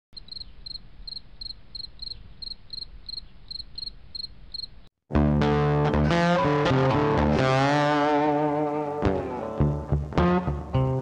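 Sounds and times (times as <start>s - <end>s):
insect chirping: 0.2s - 4.9s
loud guitar music: 5.1s - 11.0s.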